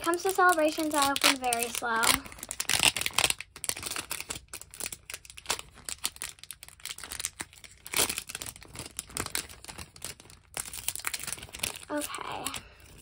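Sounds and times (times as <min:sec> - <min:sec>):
foil wrapper crinkling and tearing: 0:00.0 - 0:13.0.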